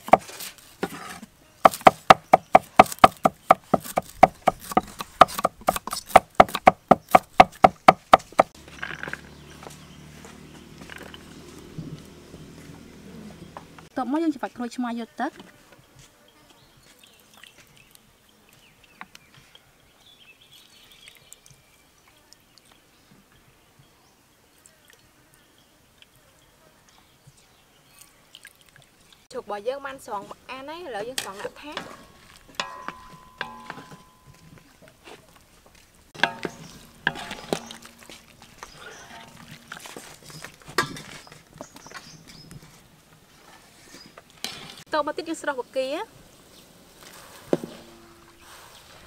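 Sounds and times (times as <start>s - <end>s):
utensils clanking against wok: 31.1s - 35.0s, 36.2s - 41.5s.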